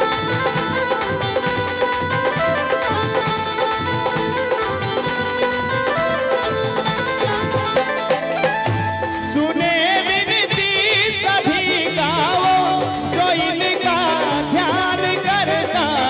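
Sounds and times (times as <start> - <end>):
dholak drum: 0.0 - 16.0
harmonium: 0.0 - 16.0
keyboard accompaniment: 0.0 - 16.0
man singing devotional song: 9.2 - 16.0.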